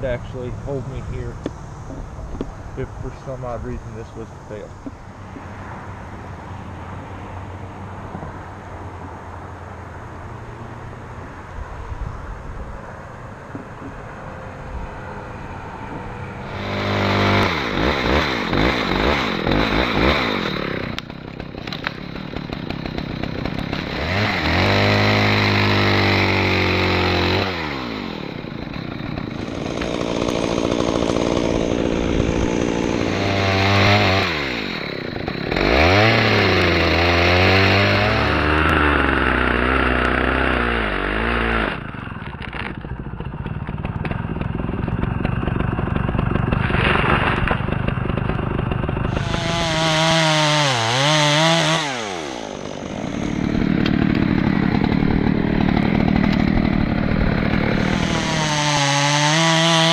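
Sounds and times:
chainsaw revving: 0:02.8 - 0:05.0, 0:14.9 - 0:59.9.

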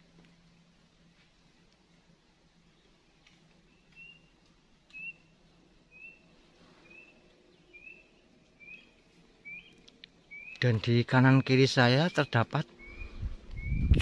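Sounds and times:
bird whistling call: 0:03.8 - 0:04.3, 0:04.9 - 0:05.3, 0:08.6 - 0:09.7, 0:10.3 - 0:10.6, 0:12.8 - 0:13.9.

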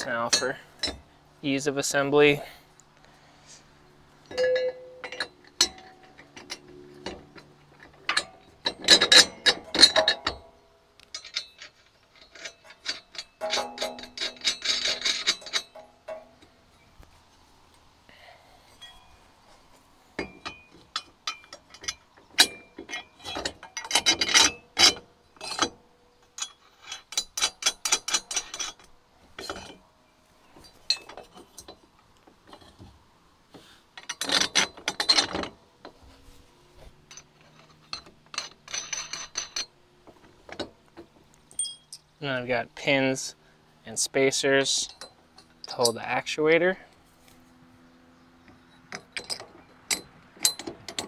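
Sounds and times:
metal clinks: 0:04.2 - 0:16.9, 0:18.7 - 0:19.3, 0:20.2 - 0:29.8, 0:37.0 - 0:39.8, 0:40.5 - 0:42.2, 0:44.5 - 0:46.9.

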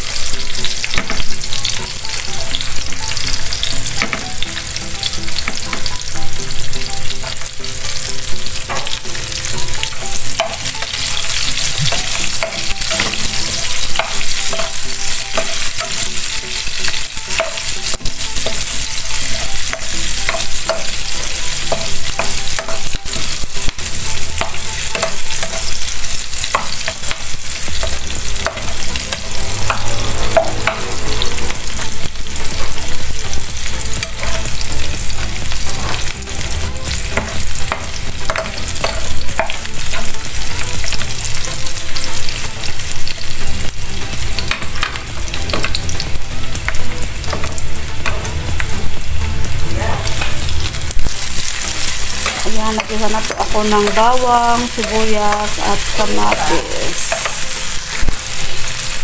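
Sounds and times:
onion sizzling in oil: 0:00.0 - 0:59.0
spatula scraping a pan: 0:08.4 - 0:43.1, 0:55.5 - 0:59.0.

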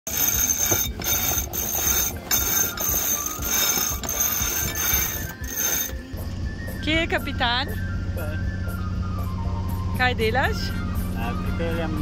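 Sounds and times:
winch ratcheting: 0:00.0 - 0:06.1.

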